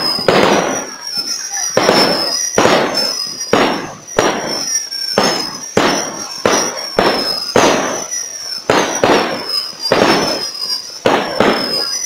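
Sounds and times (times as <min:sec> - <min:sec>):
firework shells bursting: 0:00.0 - 0:12.0.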